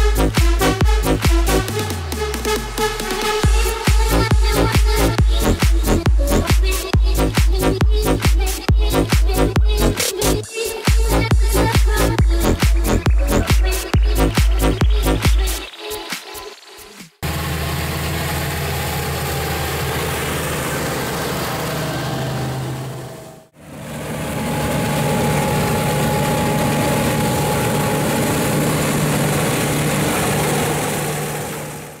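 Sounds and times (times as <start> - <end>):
tractor diesel engine running: 0.0 - 2.8, 3.4 - 10.4, 11.0 - 15.3, 17.2 - 32.0
combine harvester running: 17.2 - 32.0.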